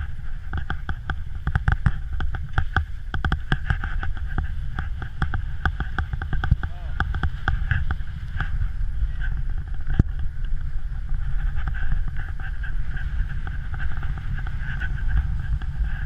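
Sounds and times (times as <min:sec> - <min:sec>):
skis scraping on snow: 0:00.0 - 0:16.0
wind buffeting microphone: 0:00.0 - 0:16.0.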